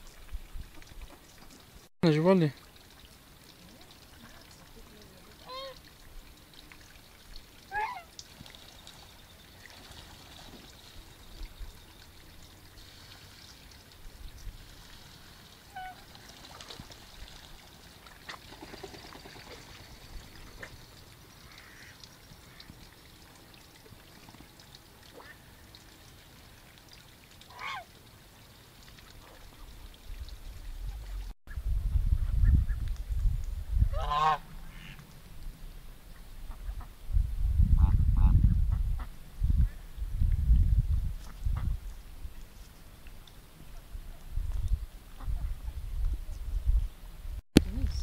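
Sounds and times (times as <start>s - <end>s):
faint steady hiss: 0.0s - 31.4s
ducks and geese calling: 7.7s - 8.1s, 15.7s - 16.1s, 21.4s - 22.7s, 27.5s - 27.9s, 33.9s - 35.0s.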